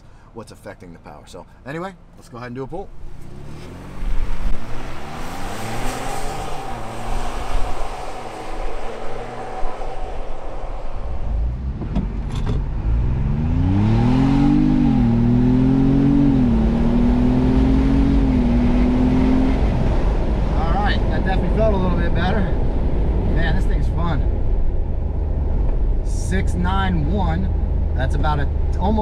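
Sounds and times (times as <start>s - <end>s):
car engine accelerating hard: 2.9s - 23.4s.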